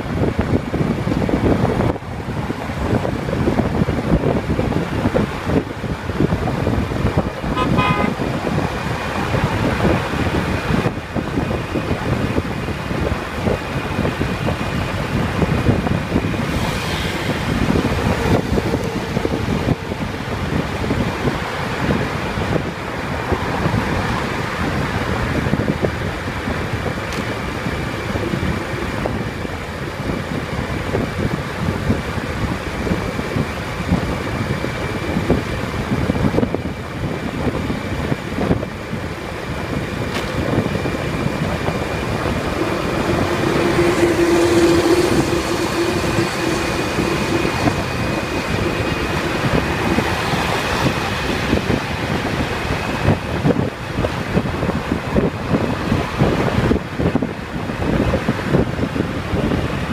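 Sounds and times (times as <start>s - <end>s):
wind and road noise: 0.0s - 59.9s
vehicle horn short beeps: 7.5s - 8.2s.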